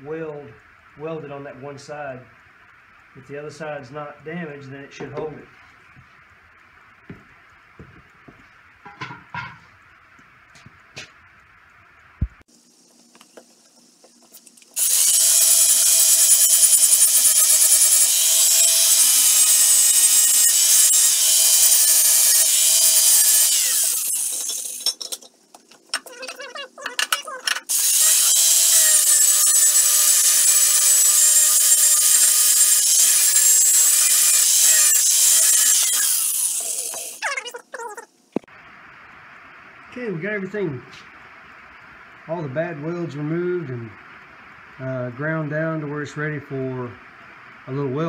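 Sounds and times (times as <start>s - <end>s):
angle grinder grinding metal: 14.8s - 25.3s, 25.9s - 37.3s
grinder motor whine: 27.6s - 37.2s.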